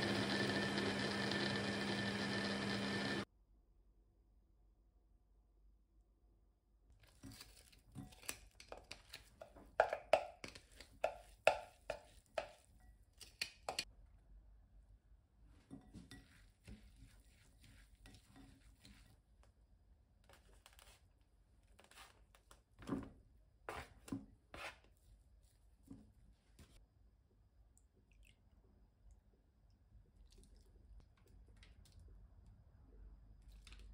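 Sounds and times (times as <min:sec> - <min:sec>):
spatula scraping and tapping a bowl: 0:08.8 - 0:13.9, 0:15.6 - 0:19.2.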